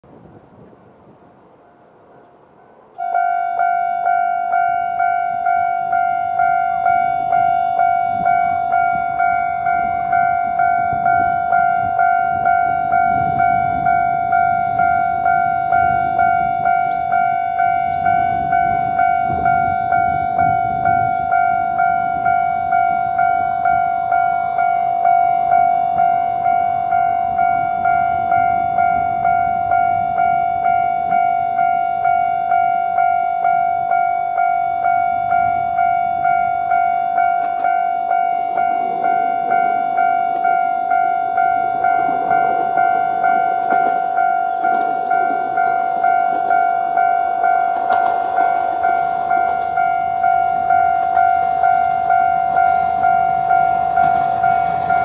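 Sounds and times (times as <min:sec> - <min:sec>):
level crossing warning bell: 0:02.9 - 0:55.0.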